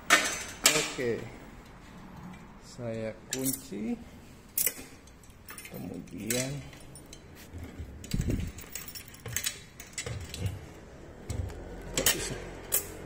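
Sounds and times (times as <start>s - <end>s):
keys jangling against bicycle lock: 4.5s - 10.7s.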